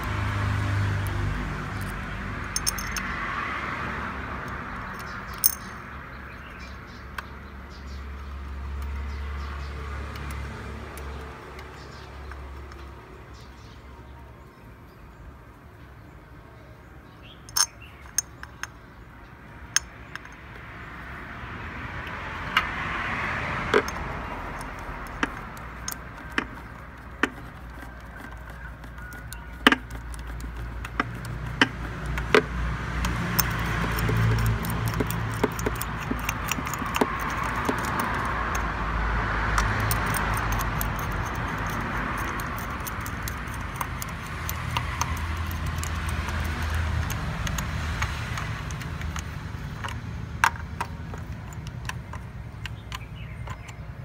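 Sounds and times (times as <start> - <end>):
sharp metallic clicks: 1.0 - 3.4, 4.4 - 13.5, 17.4 - 20.8, 22.0 - 54.0
car engine humming: 21.9 - 54.0.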